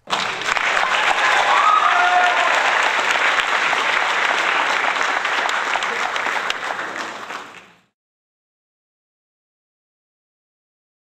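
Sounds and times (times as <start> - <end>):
crowd applause: 0.0 - 8.0.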